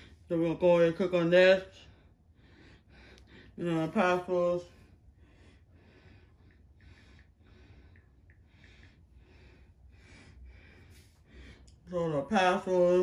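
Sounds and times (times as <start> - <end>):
soft breathing: 1.7 - 3.6, 4.6 - 11.9.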